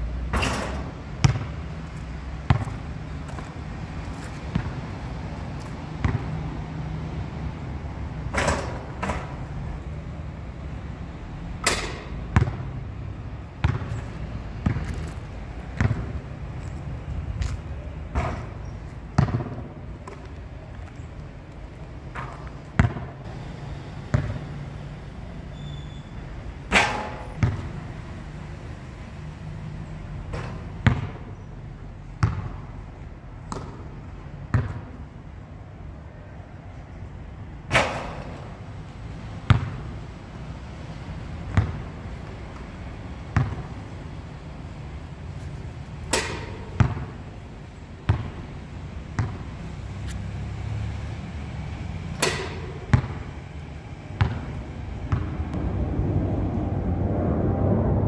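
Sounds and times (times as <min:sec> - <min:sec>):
basketball bouncing on hard court: 0:01.2 - 0:01.6, 0:02.4 - 0:03.5, 0:04.5 - 0:04.8, 0:06.0 - 0:06.3, 0:11.7 - 0:12.7, 0:13.6 - 0:16.2, 0:19.2 - 0:20.2, 0:22.2 - 0:23.1, 0:24.1 - 0:24.4, 0:27.3 - 0:27.7, 0:30.3 - 0:31.2, 0:32.2 - 0:32.6, 0:34.5 - 0:34.9, 0:39.5 - 0:39.8, 0:41.5 - 0:41.8, 0:43.4 - 0:43.7, 0:46.1 - 0:47.2, 0:48.1 - 0:48.4, 0:49.2 - 0:49.4, 0:52.2 - 0:53.2, 0:54.2 - 0:54.5, 0:55.1 - 0:55.3.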